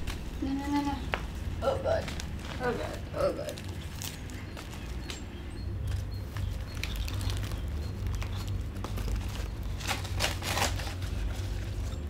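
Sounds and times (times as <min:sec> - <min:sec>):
steady low hum: 0:00.0 - 0:12.0
paper rustling: 0:01.9 - 0:05.2, 0:05.9 - 0:12.0.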